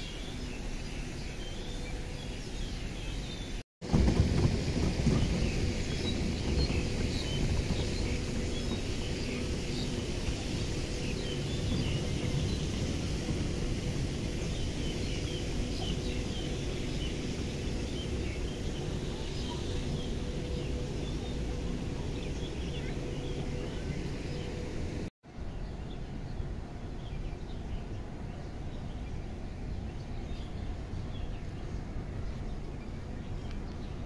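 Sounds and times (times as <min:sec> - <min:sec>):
bird chirps: 0:00.0 - 0:03.6, 0:05.0 - 0:24.7
steady low rumble: 0:00.0 - 0:34.0.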